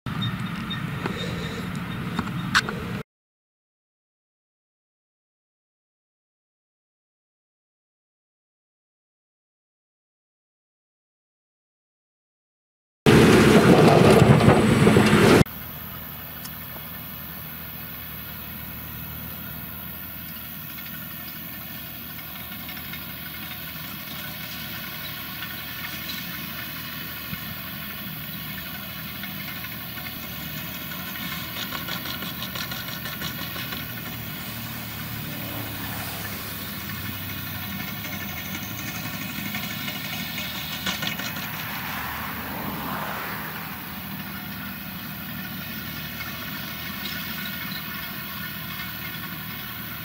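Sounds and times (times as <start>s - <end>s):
tractor diesel engine running: 0.1s - 3.0s, 13.1s - 50.0s.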